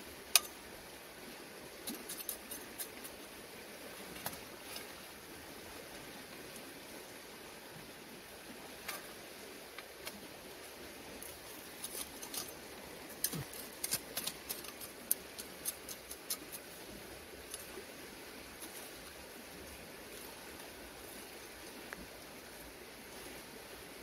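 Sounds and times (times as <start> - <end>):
hand hoe scraping stony soil: 1.8 - 3.2, 11.2 - 17.8.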